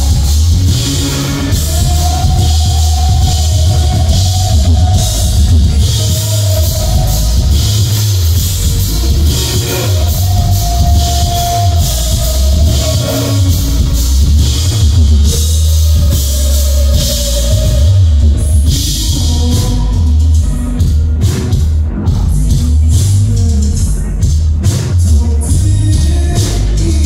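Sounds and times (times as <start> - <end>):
man singing long held notes: 0.0 - 20.8
bass guitar: 0.0 - 27.0
drum kit: 0.0 - 27.0
rock band playing loudly: 0.0 - 27.0.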